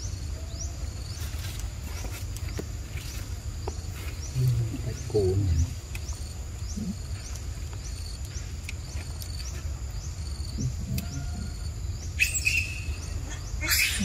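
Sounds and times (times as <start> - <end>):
insect chirping: 0.0 - 14.0
insects droning: 0.0 - 14.0.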